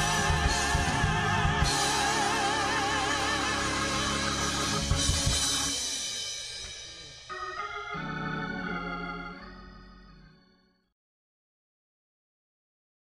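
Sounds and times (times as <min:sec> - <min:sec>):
drum hits: 0:00.0 - 0:07.2
gospel band and singing: 0:00.0 - 0:09.1
organ-like keyboard chords: 0:00.0 - 0:10.9.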